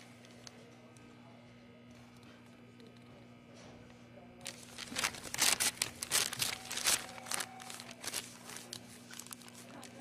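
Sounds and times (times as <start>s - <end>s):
paper bag and wrapper crinkling: 4.4s - 10.0s.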